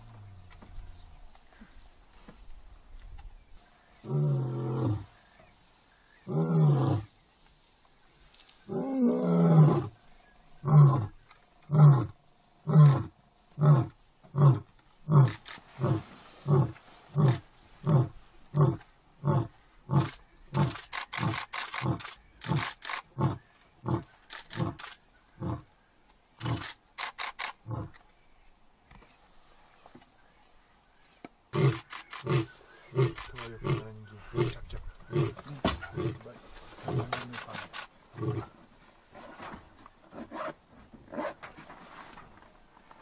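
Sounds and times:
lion roaring and grunting: 0:04.0 - 0:05.1, 0:06.2 - 0:07.1, 0:08.7 - 0:10.0, 0:10.6 - 0:25.7, 0:27.6 - 0:28.0, 0:31.5 - 0:37.2, 0:38.1 - 0:38.5.

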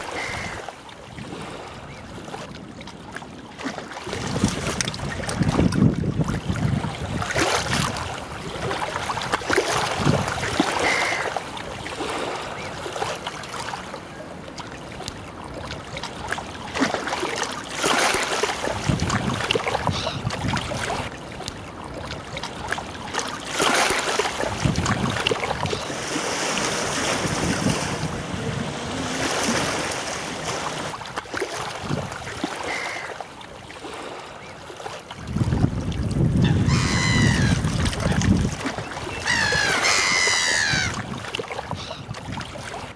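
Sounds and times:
lake water lapping: 0:00.0 - 0:42.9
gusty wind buffeting microphone: 0:04.1 - 0:08.2, 0:24.5 - 0:30.9, 0:35.2 - 0:38.6
bird calls: 0:36.4 - 0:38.2, 0:38.8 - 0:41.0.

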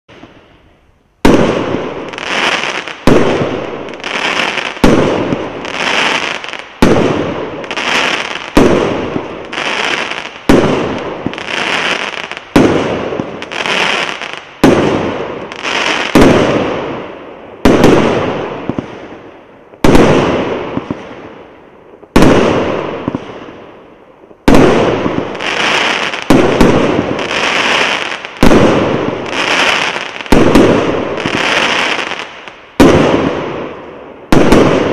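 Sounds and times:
firework bangs and crackle: 0:00.1 - 0:34.9
firework reports: 0:01.2 - 0:21.3, 0:24.4 - 0:34.9.

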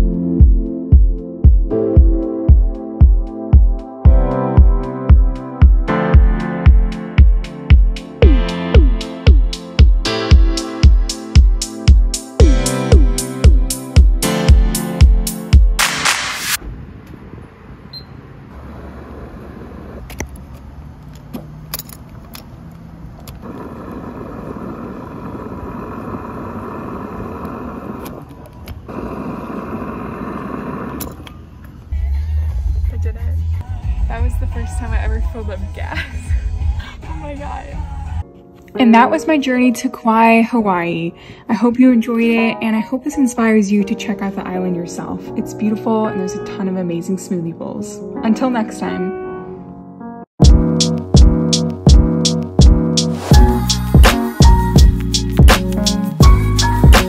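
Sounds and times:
kick drum beat: 0:00.0 - 0:15.8, 0:50.4 - 0:57.0
held synth chords: 0:00.0 - 0:15.9.

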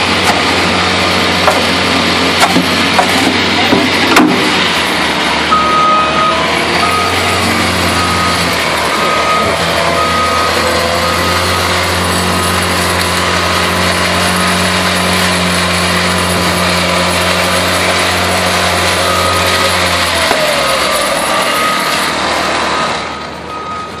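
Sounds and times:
small gasoline engine running: 0:00.0 - 0:23.5.

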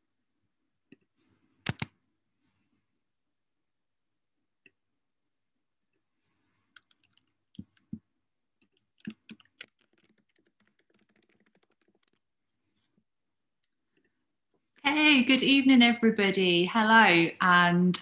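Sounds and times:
computer keyboard typing: 0:01.6 - 0:01.9, 0:06.7 - 0:07.9, 0:08.6 - 0:12.2.

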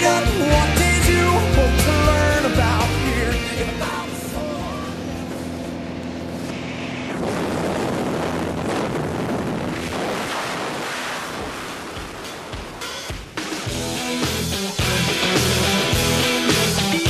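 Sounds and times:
wind buffeting microphone: 0:05.0 - 0:12.8.

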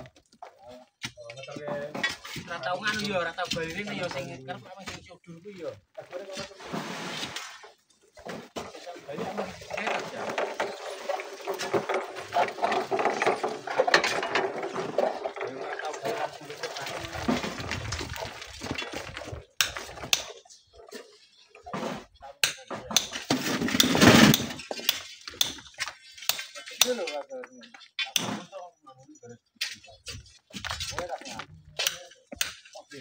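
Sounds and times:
men talking: 0:00.5 - 0:06.8, 0:08.6 - 0:19.2, 0:21.6 - 0:23.2, 0:26.4 - 0:33.0
shovel scraping gravel: 0:09.9 - 0:20.2, 0:23.2 - 0:25.5
shovel blades striking stones: 0:22.4 - 0:27.0.

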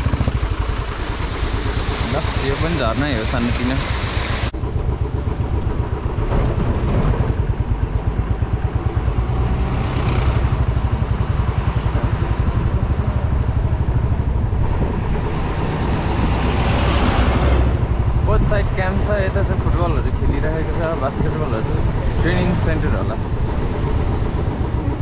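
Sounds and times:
motorcycle engine rumbling: 0:00.0 - 0:25.0.

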